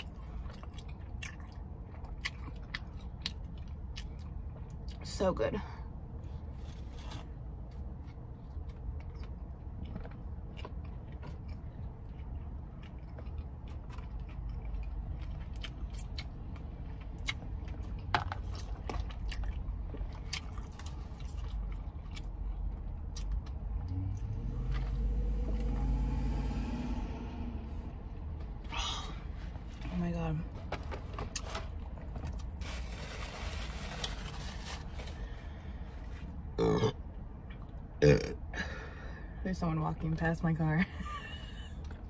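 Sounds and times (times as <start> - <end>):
person chewing food: 0.0 - 5.0, 6.3 - 27.8
low steady hum: 0.0 - 42.0.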